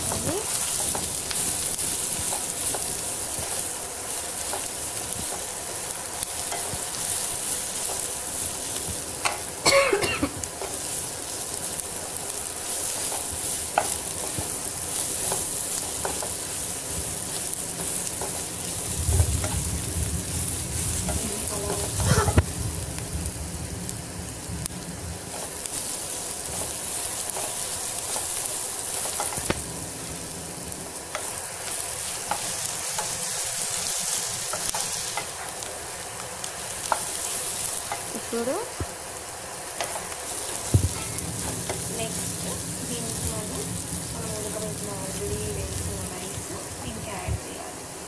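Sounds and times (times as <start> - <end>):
vegetables sizzling in oil: 0.0 - 48.0
spatula scraping pan: 20.9 - 22.4, 39.8 - 42.7.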